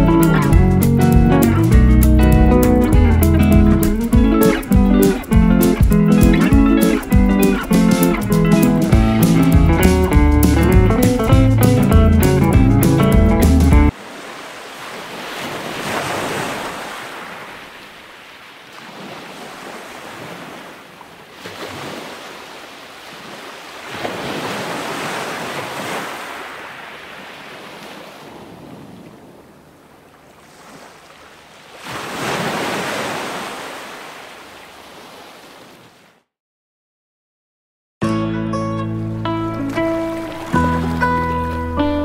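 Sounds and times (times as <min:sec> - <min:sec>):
ocean waves breaking on beach: 0:13.9 - 0:36.2, 0:39.1 - 0:42.0.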